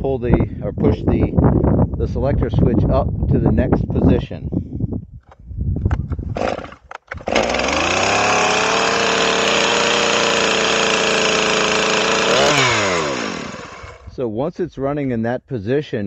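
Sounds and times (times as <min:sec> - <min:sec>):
chainsaw pull-start: 0:06.2 - 0:14.1
chainsaw running at fast idle: 0:06.4 - 0:14.1.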